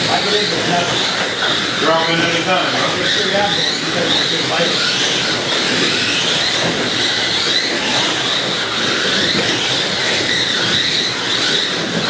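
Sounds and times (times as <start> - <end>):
slot car motors whining: 0.0 - 12.0.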